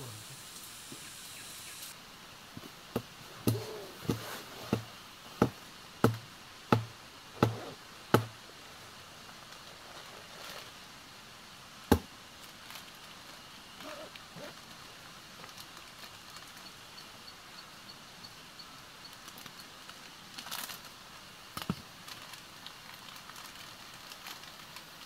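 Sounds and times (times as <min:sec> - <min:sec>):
sharp chopping knocks: 0:03.0 - 0:08.3.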